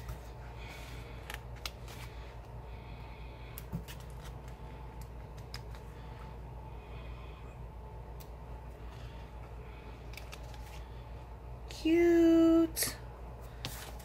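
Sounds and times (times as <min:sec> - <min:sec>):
paper sticker sheet rustling: 0:00.0 - 0:02.3, 0:10.1 - 0:10.9, 0:13.6 - 0:14.0
steady low hum: 0:00.0 - 0:14.0.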